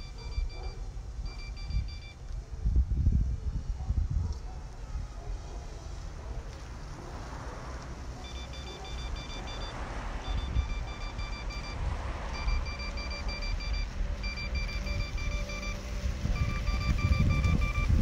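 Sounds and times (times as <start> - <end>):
rapid electronic beeping: 0.0 - 2.2, 8.2 - 18.0
wind rumble on microphone: 0.3 - 8.0, 10.0 - 18.0.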